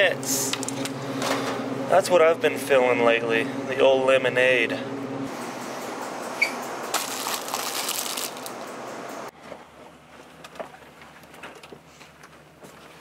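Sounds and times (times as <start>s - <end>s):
rustling and crinkling handling noise: 6.9s - 8.7s.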